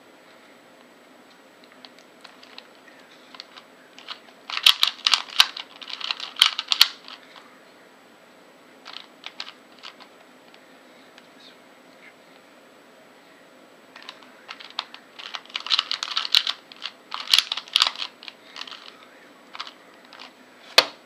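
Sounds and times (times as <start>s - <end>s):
plastic puzzle cube clicking: 3.3s - 7.2s, 14.0s - 18.9s.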